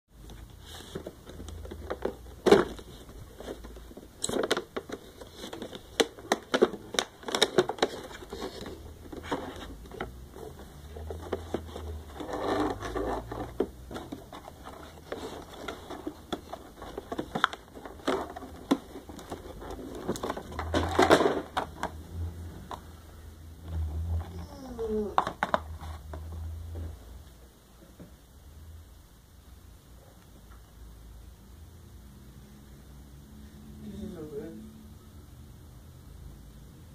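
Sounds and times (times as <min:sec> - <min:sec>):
plastic packaging crinkling: 0:00.7 - 0:22.0.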